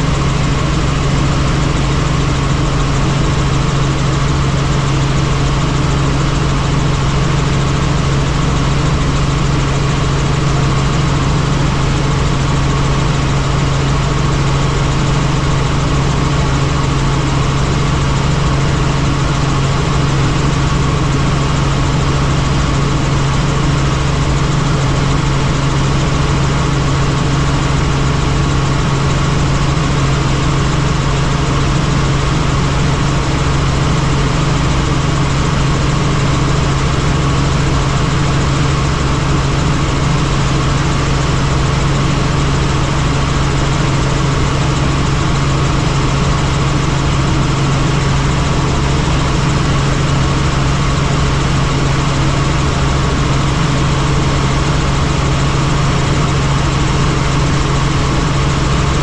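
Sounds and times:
helicopter engine and rotors: 0.0s - 59.0s.

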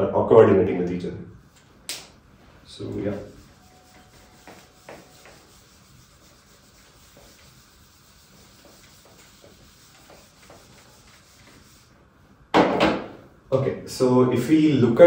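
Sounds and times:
eraser swishing on whiteboard: 2.9s - 12.3s.

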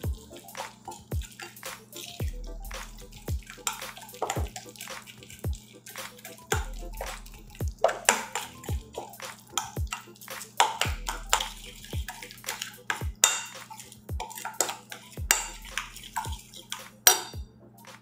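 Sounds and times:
metal spoon scraping ceramic bowl: 7.8s - 17.4s.

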